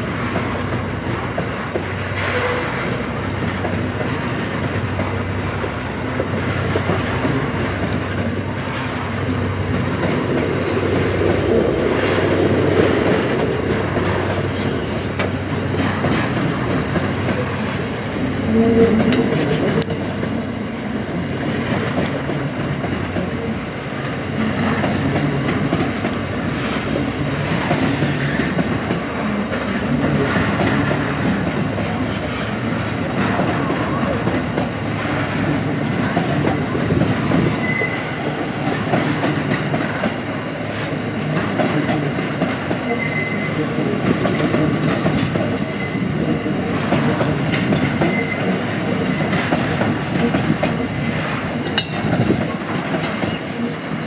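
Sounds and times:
train wagons rumbling on rails: 0.0s - 54.0s
wheel squeals: 37.5s - 38.1s, 42.9s - 43.6s.

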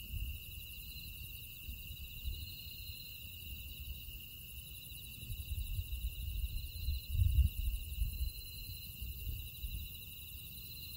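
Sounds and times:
insects chirping: 0.0s - 10.9s.

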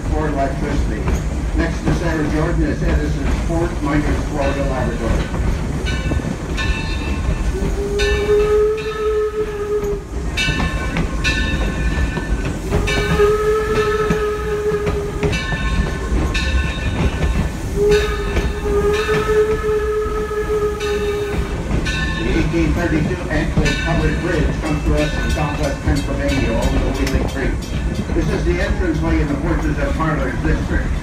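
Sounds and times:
rumble of moving train: 0.0s - 31.0s
steam locomotive whistle blasts: 7.5s - 10.5s, 12.6s - 16.2s, 17.6s - 21.6s.

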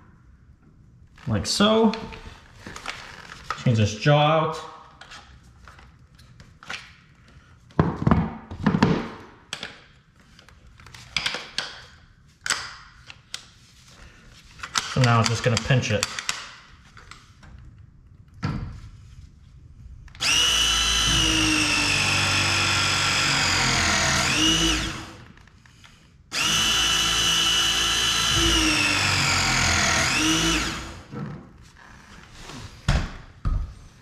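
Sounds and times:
press tool motor whirring: 20.2s - 25.3s, 26.3s - 31.1s.

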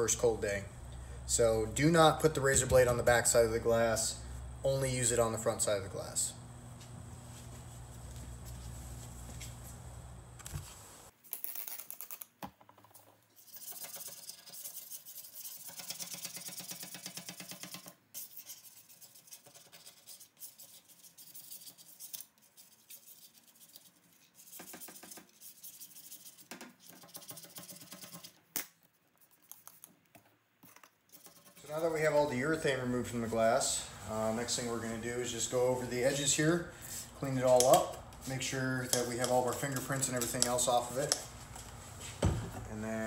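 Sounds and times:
low steady hum: 0.0s - 11.1s.

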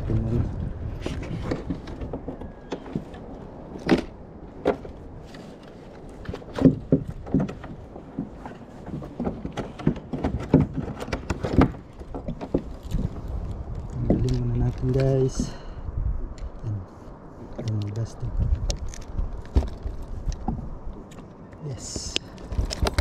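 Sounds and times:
knocks and clicks on kayak: 6.2s - 13.2s.

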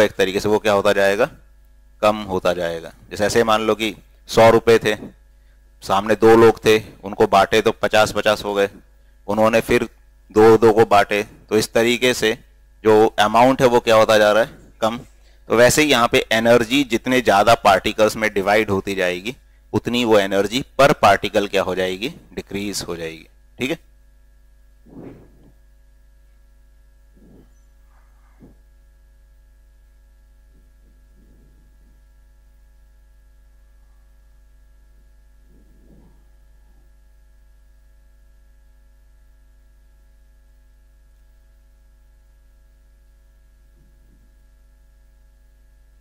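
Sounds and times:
electrical mains hum: 0.0s - 46.0s
whiteboard rubbing: 24.9s - 25.6s.

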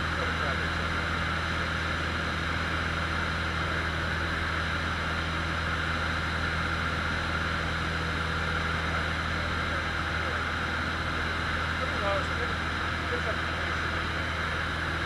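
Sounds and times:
airplane engine and propeller droning: 0.0s - 15.0s.

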